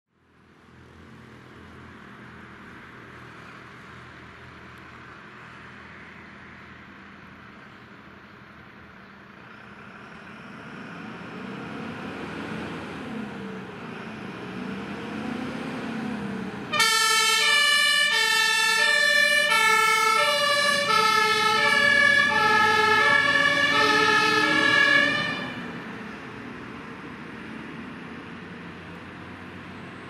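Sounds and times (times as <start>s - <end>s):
diesel engine pulling away: 0.2s - 30.0s
two-tone siren: 16.7s - 25.8s.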